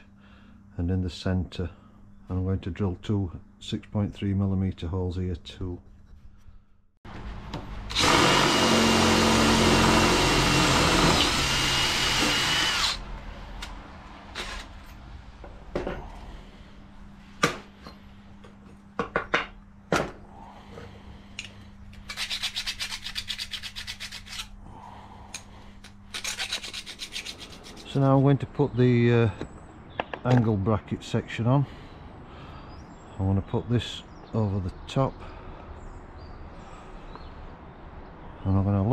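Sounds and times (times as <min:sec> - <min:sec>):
cordless drill boring metal: 0:07.9 - 0:13.0
hand file rasping metal: 0:22.1 - 0:24.5, 0:26.1 - 0:28.0.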